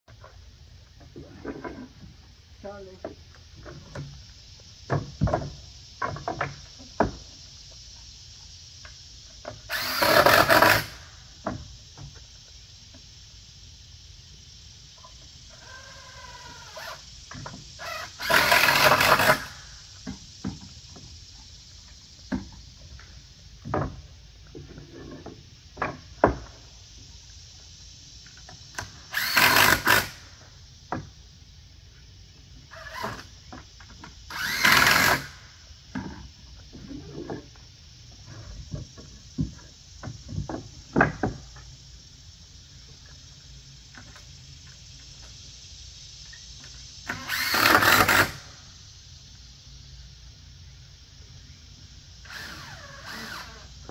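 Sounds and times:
cordless drill driving screws: 0:09.7 - 0:11.0, 0:17.8 - 0:19.6, 0:29.1 - 0:30.2, 0:34.3 - 0:35.4, 0:47.1 - 0:48.4, 0:52.3 - 0:53.7.

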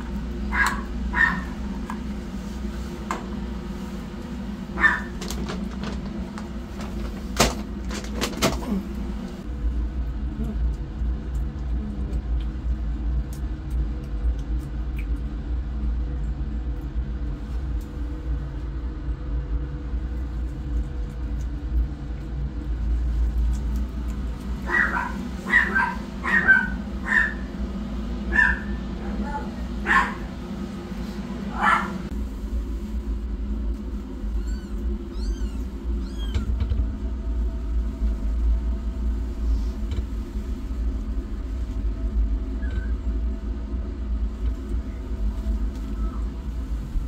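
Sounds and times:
low rumble: 0:00.0 - 0:47.0
cat eating from steel bowl: 0:10.0 - 0:16.9, 0:19.8 - 0:25.6
kittens mewing: 0:34.3 - 0:36.7.

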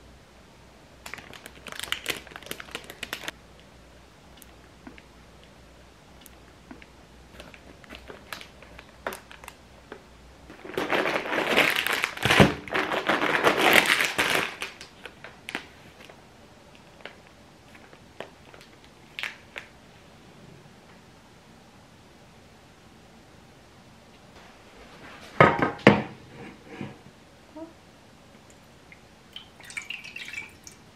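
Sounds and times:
plastic wrappers crinkling: 0:01.0 - 0:03.4, 0:07.4 - 0:16.2, 0:16.9 - 0:19.7.

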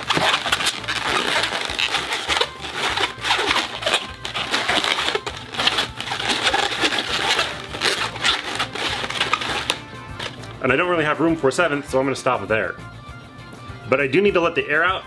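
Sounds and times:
balloon rubbing and squeaking: 0:00.0 - 0:10.6.

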